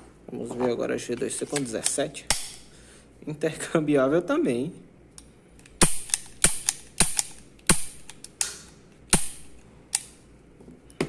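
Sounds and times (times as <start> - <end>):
pistol trigger clicks: 5.6 - 10.1.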